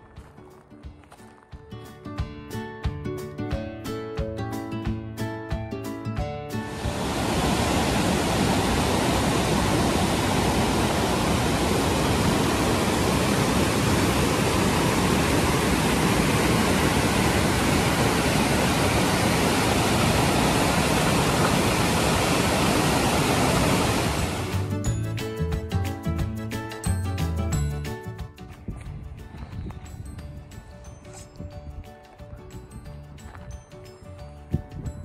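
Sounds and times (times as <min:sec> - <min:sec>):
waterfall rushing: 0:06.6 - 0:24.8.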